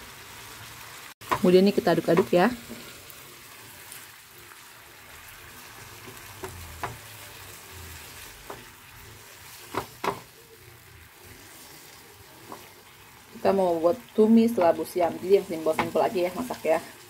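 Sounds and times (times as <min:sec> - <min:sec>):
food stir-frying with sizzle: 0:00.0 - 0:17.0
spatula knocking against pan: 0:09.7 - 0:10.3.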